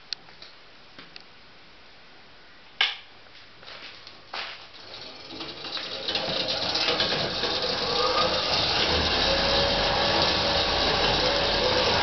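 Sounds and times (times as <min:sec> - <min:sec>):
crusher machine rattling: 0:04.7 - 0:12.0.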